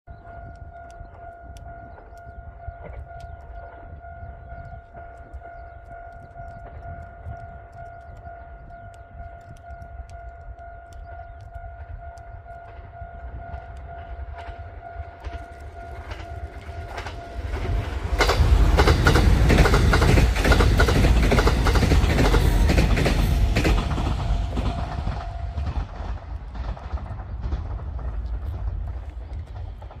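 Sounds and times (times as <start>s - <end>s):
diesel train engines passing: 9.9s - 30.0s
train wheels clattering on rail joints: 11.2s - 30.0s.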